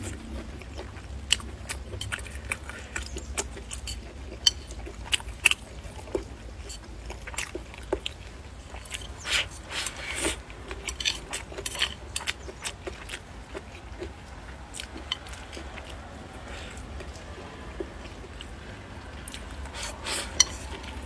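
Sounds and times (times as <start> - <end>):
person chewing and smacking: 0.0 - 21.0
steady low hum: 0.0 - 21.0
chopsticks clicking against bowl: 19.8 - 21.0.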